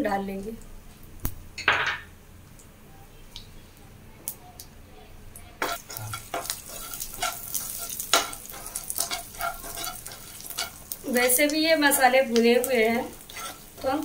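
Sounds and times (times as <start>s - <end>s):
metal spoon scraping a pan: 5.6s - 12.1s, 12.9s - 14.0s
spices sizzling in hot oil: 5.6s - 14.0s.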